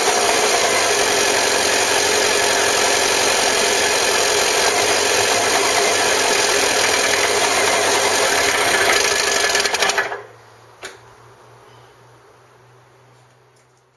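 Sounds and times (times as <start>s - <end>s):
two-stroke engine running: 0.0s - 10.3s.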